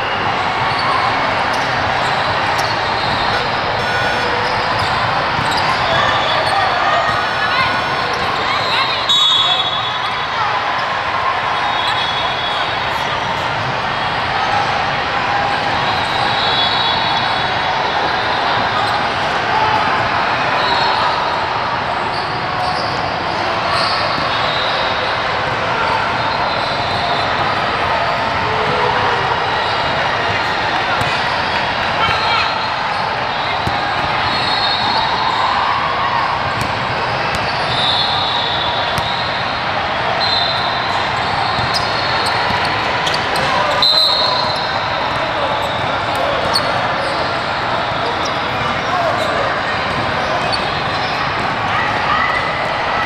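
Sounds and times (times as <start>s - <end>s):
many voices blurring together: 0.0s - 53.0s
balls bouncing on court: 1.5s - 10.0s, 30.3s - 32.3s, 36.5s - 37.8s, 38.9s - 39.2s, 41.5s - 43.8s.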